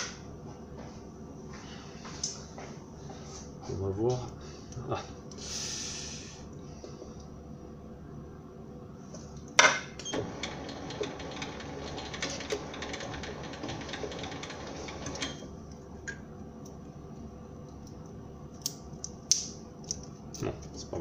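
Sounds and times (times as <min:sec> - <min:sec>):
lathe spindle rattling and ticking: 0:10.2 - 0:15.4.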